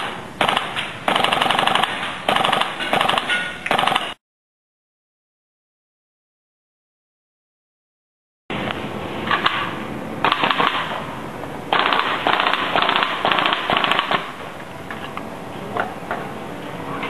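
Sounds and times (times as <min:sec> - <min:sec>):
airsoft rifle firing bursts: 0:00.4 - 0:04.2, 0:10.2 - 0:10.9, 0:11.7 - 0:14.3.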